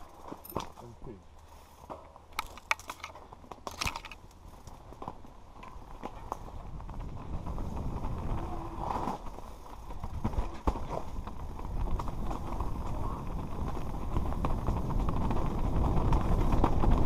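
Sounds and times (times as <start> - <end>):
tyres crunching over stones: 0.0 - 7.2
bike clicking and rattling: 0.0 - 17.0.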